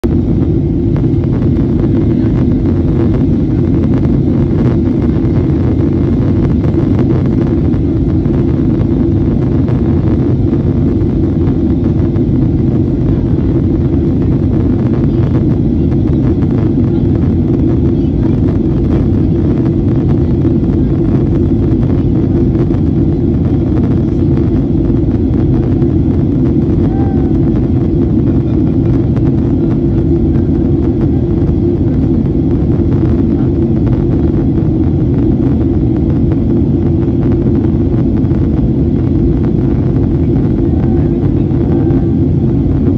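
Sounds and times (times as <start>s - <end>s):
airplane cabin rumble: 0.0s - 42.9s.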